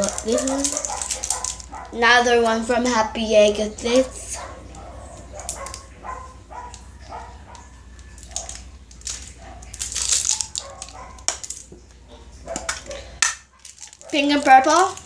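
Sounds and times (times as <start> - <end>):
plastic toy pieces clicking: 0.0 - 1.9, 7.5 - 11.7, 12.6 - 15.0
plastic crinkle: 0.0 - 15.0.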